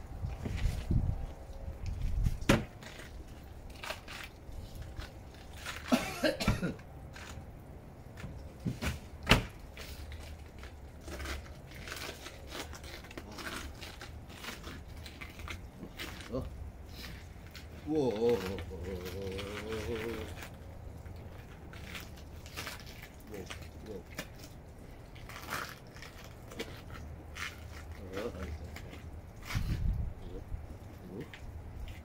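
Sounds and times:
person coughing: 5.9s - 6.8s.

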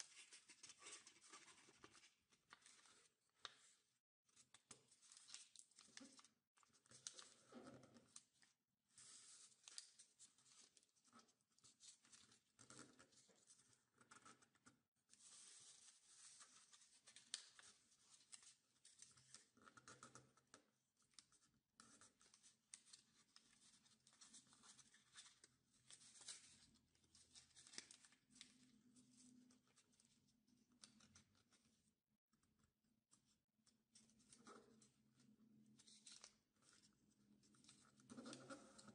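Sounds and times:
paper rustling and crinkling: 0.0s - 3.6s, 22.0s - 30.1s.

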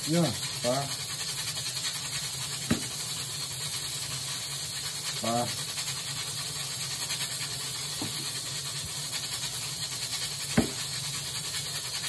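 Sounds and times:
steady background hiss: 0.0s - 12.0s
knife striking cutting board: 10.6s - 10.9s.

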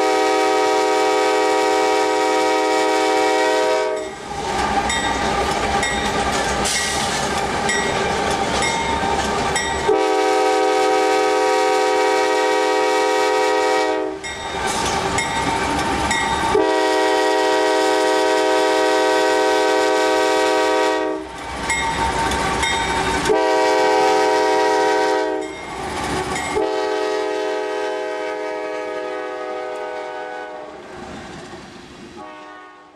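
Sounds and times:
locomotive air horn blasts: 0.0s - 4.1s, 9.8s - 14.2s, 16.5s - 21.3s, 23.2s - 25.5s, 26.5s - 30.8s, 32.2s - 32.9s
train engine and wheels rumbling: 0.0s - 32.9s.

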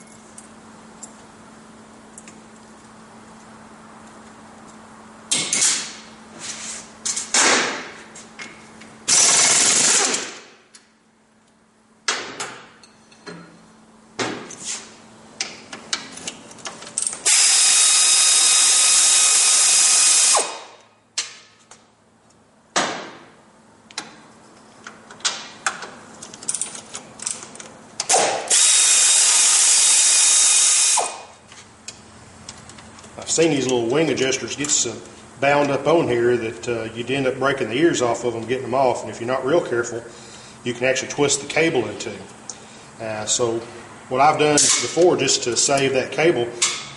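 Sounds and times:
handheld power tool running: 9.1s - 10.3s, 17.2s - 20.8s, 28.1s - 31.3s.

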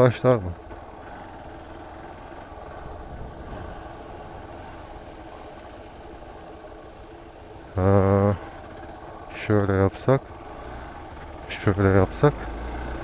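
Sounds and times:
motorcycle engine idling: 0.0s - 13.0s
man speaking: 7.8s - 8.4s, 9.3s - 10.2s, 11.5s - 12.5s.

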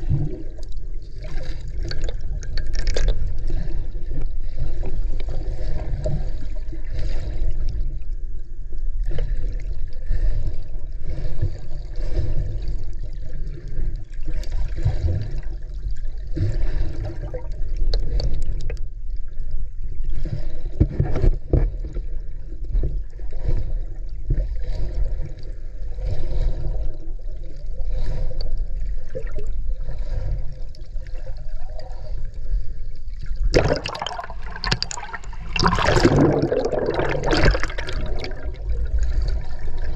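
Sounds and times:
water sloshing underwater: 0.0s - 39.9s
rush of water: 33.5s - 39.9s.

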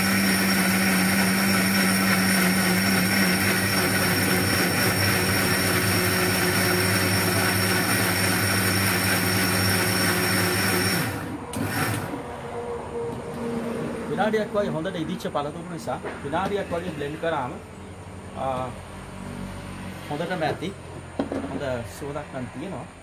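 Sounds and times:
blender motor running: 0.0s - 12.2s.

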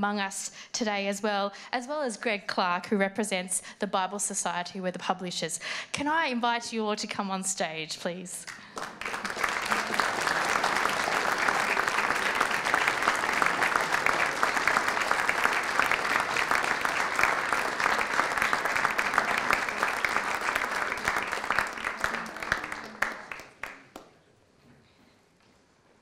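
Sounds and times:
audience applauding: 8.5s - 24.1s.

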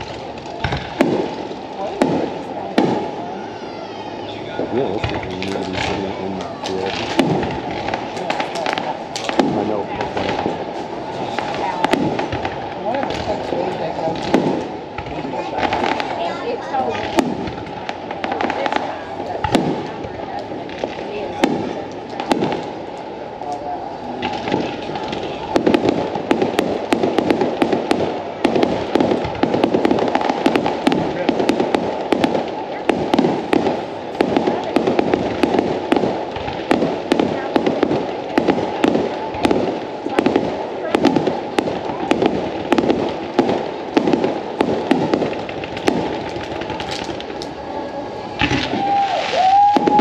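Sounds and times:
fireworks crackling pops: 0.0s - 50.0s.

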